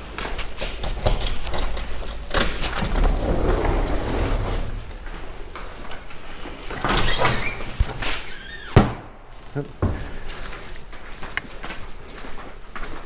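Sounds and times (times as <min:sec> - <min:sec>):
scattered clicks and knocks: 0:00.2 - 0:03.0
low steady rumble: 0:02.8 - 0:06.3
footsteps on concrete: 0:09.8 - 0:13.0.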